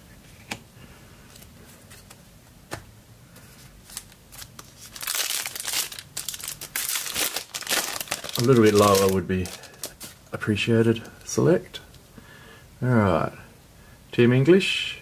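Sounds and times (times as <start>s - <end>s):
card pack wrapper crinkling and tearing: 3.8s - 10.2s.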